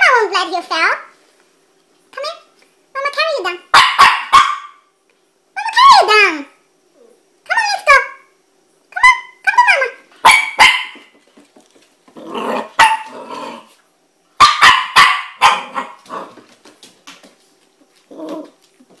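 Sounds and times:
puppy barking: 0:03.7 - 0:04.9, 0:10.2 - 0:11.1, 0:12.6 - 0:13.7, 0:14.4 - 0:16.4
claws clicking on hardwood floor: 0:11.0 - 0:12.3, 0:16.0 - 0:19.0
puppy growling: 0:12.1 - 0:13.8, 0:15.5 - 0:16.6, 0:17.9 - 0:18.9.

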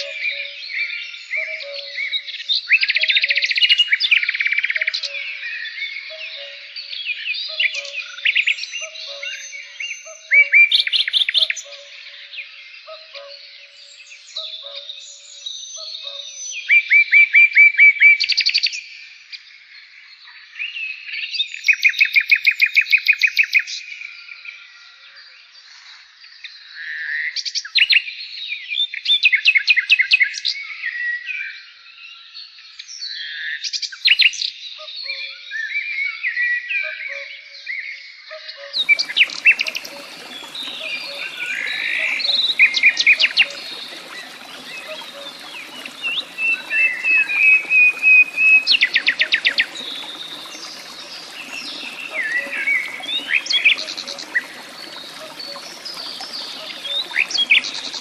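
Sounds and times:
birds trilling and chirping: 0:38.8 - 0:58.0.

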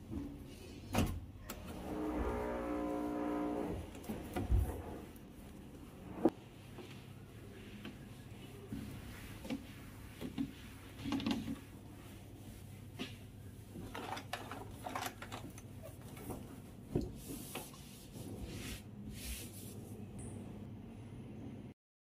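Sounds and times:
cloth wiping metal surface: 0:04.7 - 0:13.6, 0:16.6 - 0:20.0.

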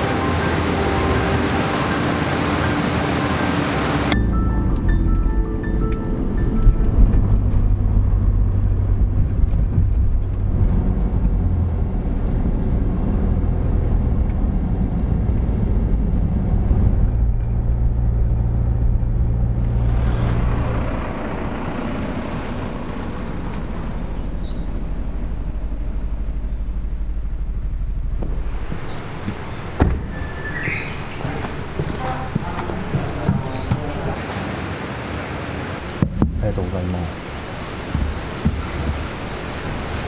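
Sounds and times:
car engine and road drone: 0:00.0 - 0:40.0
tyre and wind noise: 0:06.5 - 0:20.8, 0:27.9 - 0:40.0.

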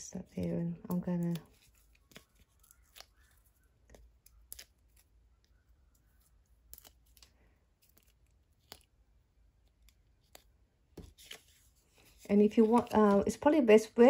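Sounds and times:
paper and card rustling: 0:00.1 - 0:05.2, 0:09.6 - 0:13.7.

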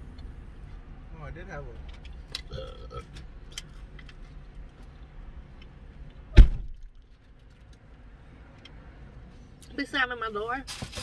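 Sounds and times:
car door slamming: 0:06.3 - 0:06.9.

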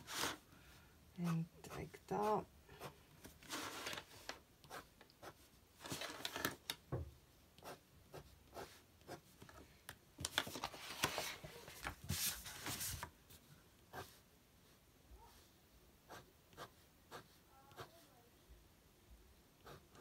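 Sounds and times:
pen scratching on paper: 0:04.6 - 0:05.5, 0:07.6 - 0:09.2, 0:16.1 - 0:18.0, 0:19.6 - 0:20.0.

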